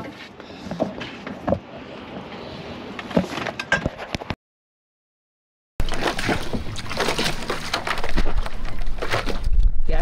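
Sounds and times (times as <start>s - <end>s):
choppy splashing water: 5.8s - 10.0s
wind noise: 7.8s - 10.0s.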